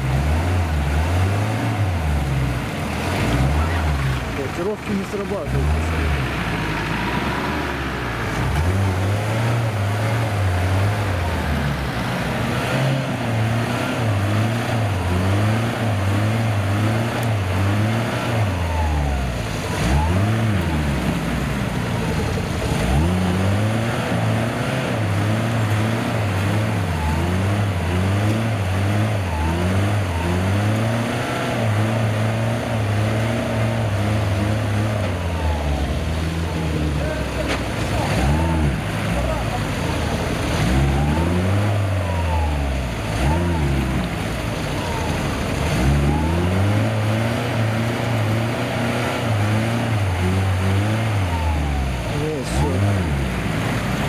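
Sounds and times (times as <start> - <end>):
diesel engine revving hard: 0.0 - 54.0
wheels spinning in mud: 12.2 - 54.0.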